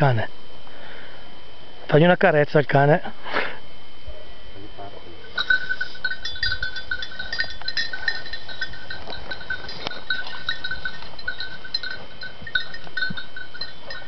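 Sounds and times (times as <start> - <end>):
faint steady high tone: 3.7 - 14.0
small dog collar bell clinking: 5.3 - 14.0.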